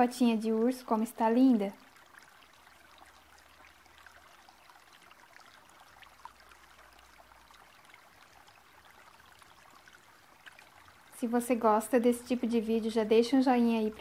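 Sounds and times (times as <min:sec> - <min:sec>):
faint steady hiss: 0:00.0 - 0:14.0.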